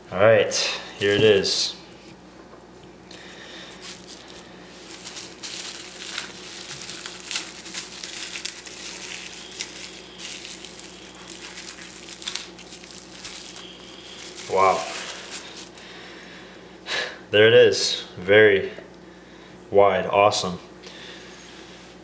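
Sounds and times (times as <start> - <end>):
bubble wrap crinkling: 3.1 - 15.9.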